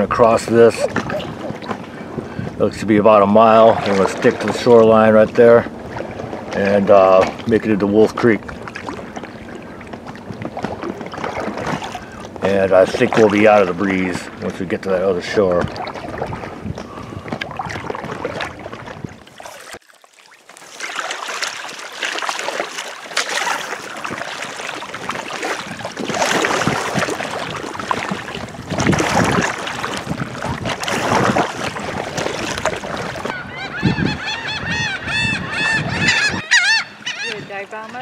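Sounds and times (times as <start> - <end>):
paddle splashes: 0.0 - 34.0
water slapping a kayak: 0.0 - 38.0
wind noise: 15.2 - 19.4, 24.9 - 38.0
birds calling: 32.4 - 38.0.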